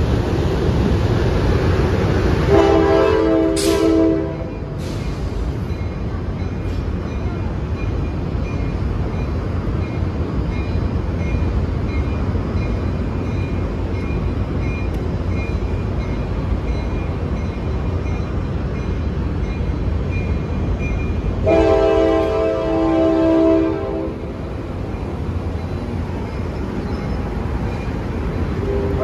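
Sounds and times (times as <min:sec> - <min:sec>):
train rumbling slowly: 0:00.0 - 0:29.0
loud train horn: 0:02.5 - 0:04.8, 0:21.4 - 0:24.4, 0:28.6 - 0:29.0.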